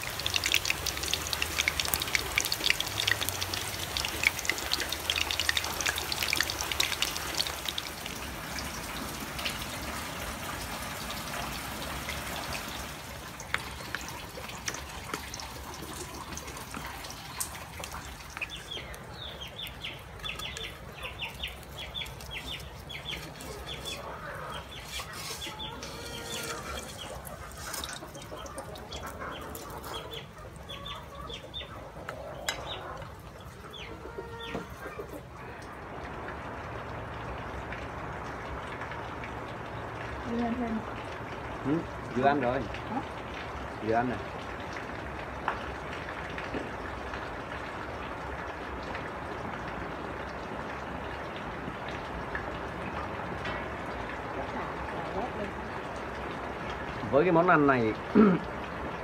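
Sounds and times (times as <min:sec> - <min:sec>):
food sizzling in hot oil: 0:00.0 - 0:08.0, 0:20.3 - 0:29.8
chicks peeping: 0:18.5 - 0:33.0.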